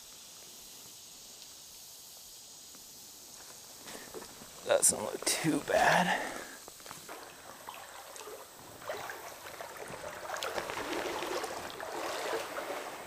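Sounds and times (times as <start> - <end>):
water splashing around waders: 6.8 - 13.0.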